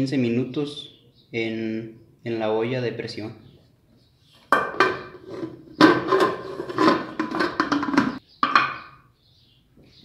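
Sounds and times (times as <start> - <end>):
metal lid scraping and clanking: 4.5 - 8.2.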